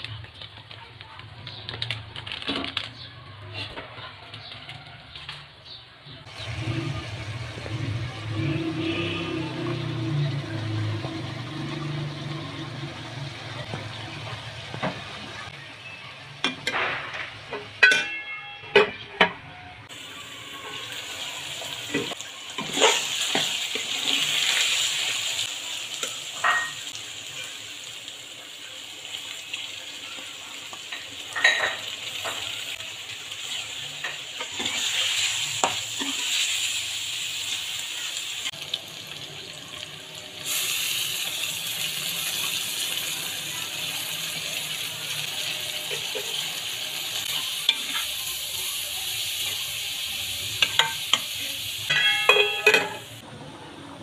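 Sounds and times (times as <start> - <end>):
vegetables sizzling in a pot: 6.3 - 17.9, 19.9 - 53.2
metal ladle clinking on pot: 17.5 - 19.4, 51.9 - 53.1.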